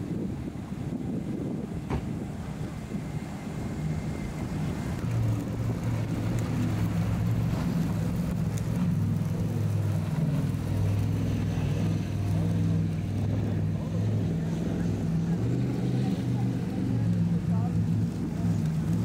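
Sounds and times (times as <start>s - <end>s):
boat engine drone: 0.0s - 19.0s
rush of wind and water: 0.0s - 19.0s.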